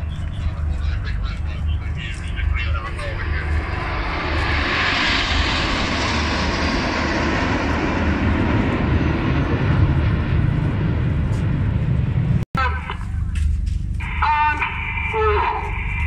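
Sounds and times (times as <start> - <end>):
jets flying past roaring: 0.0 - 12.4.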